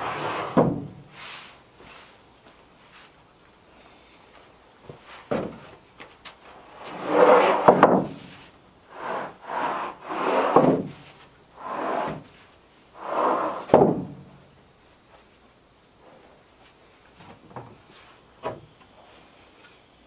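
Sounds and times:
wooden boards scraping: 0.0 - 0.9, 6.5 - 12.4, 13.0 - 14.2.

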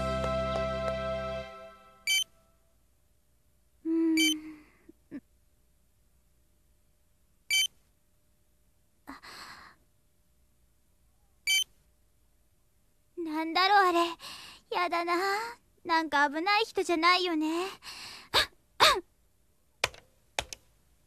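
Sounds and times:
barcode scanner beeps: 2.1 - 2.3, 11.5 - 11.7.

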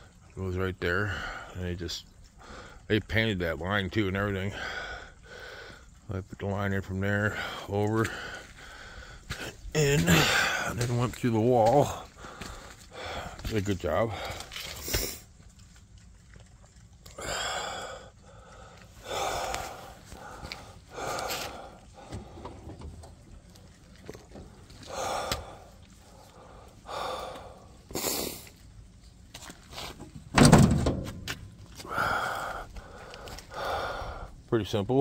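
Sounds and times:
person breathing heavily: 1.0 - 1.6, 2.3 - 2.9, 4.4 - 6.0, 7.2 - 10.9, 11.8 - 15.3, 17.2 - 22.8, 24.8 - 28.6, 31.8 - 34.5.

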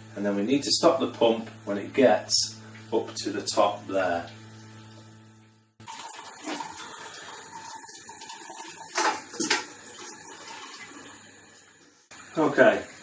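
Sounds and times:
liquid trickling into a pot: 5.8 - 11.7.

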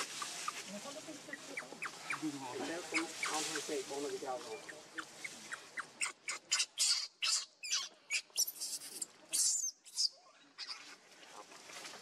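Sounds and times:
infant monkey squealing: 1.3 - 3.5, 4.5 - 10.8.

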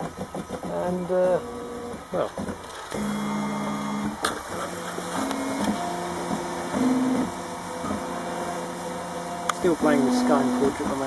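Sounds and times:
stepper motors whining: 0.8 - 11.0.

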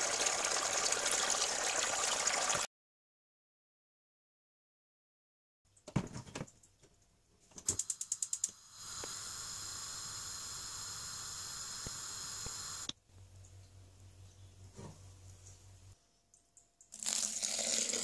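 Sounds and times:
gas burner hissing: 7.8 - 12.9.

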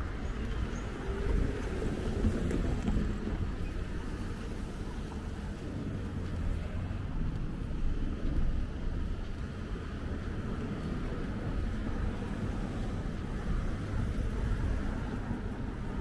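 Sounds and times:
low traffic rumble: 0.0 - 16.0
wind buffeting microphone: 0.0 - 16.0.

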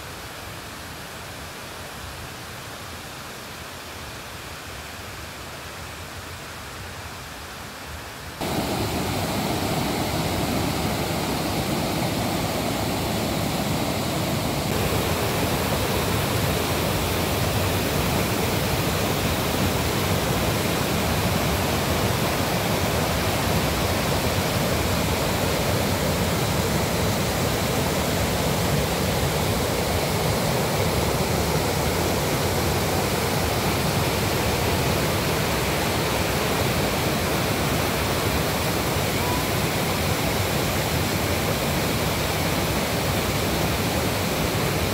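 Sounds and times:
waterfall rushing over rocks: 0.0 - 44.9.

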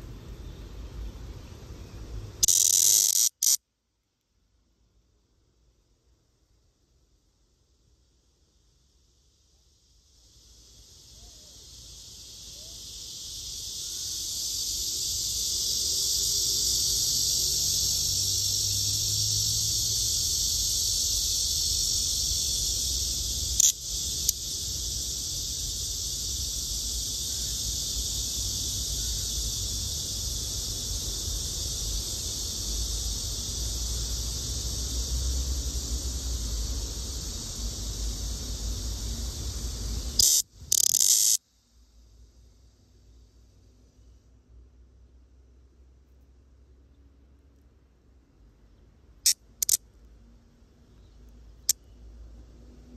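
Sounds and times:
cicada buzzing loudly: 1.8 - 3.6, 8.4 - 44.0, 49.2 - 49.8
short clicks: 2.4 - 3.6, 49.3 - 49.8.

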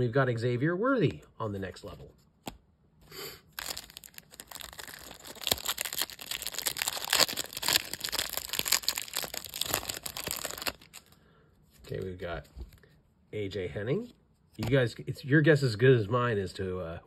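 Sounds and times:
plastic wrapper crinkling: 3.5 - 11.2.

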